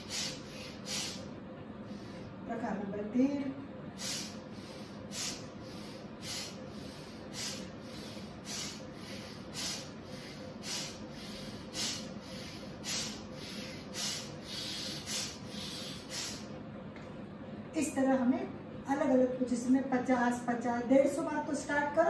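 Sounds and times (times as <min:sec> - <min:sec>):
forceful breathing through nose: 0:00.0 - 0:01.3, 0:04.0 - 0:16.5.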